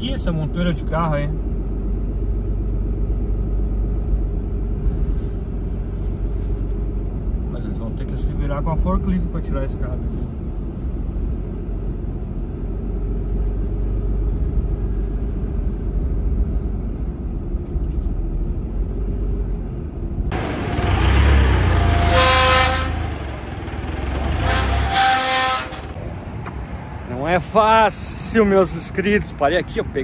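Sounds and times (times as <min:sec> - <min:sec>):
truck engine rumbling: 0:00.0 - 0:30.0
forklift engine working: 0:20.3 - 0:26.0
short honk-like tone: 0:21.6 - 0:23.3, 0:24.2 - 0:26.0.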